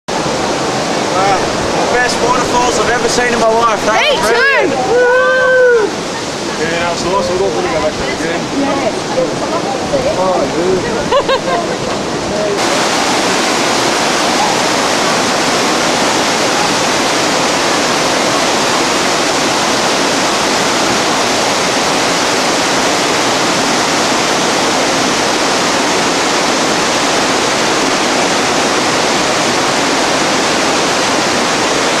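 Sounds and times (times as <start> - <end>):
rapids rushing over rocks: 0.1 - 32.0.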